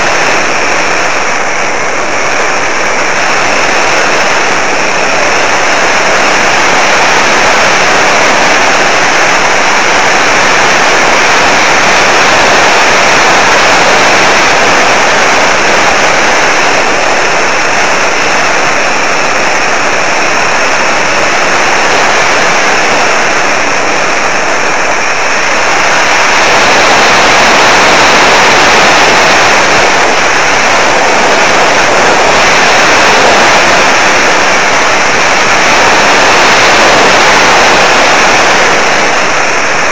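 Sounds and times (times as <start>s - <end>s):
rush of airflow over microphone: 0.0s - 39.9s.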